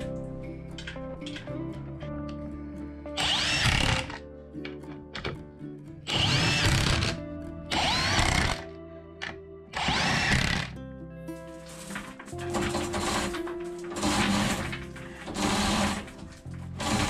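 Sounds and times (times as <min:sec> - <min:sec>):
background music: 0:00.0 - 0:17.0
cordless driver motor whine: 0:03.2 - 0:04.2, 0:06.1 - 0:10.7.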